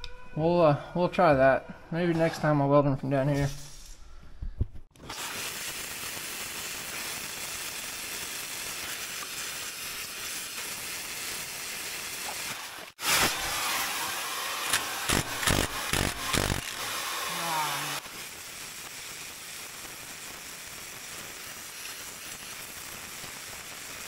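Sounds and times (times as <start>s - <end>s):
torch flame hissing: 5.0s - 24.0s
impact wrench hammering: 14.7s - 17.0s.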